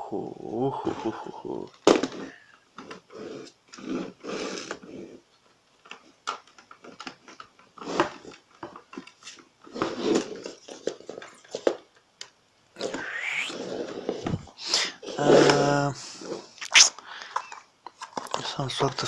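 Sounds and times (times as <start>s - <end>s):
plastic toy car clicks and knocks: 5.8s - 12.4s.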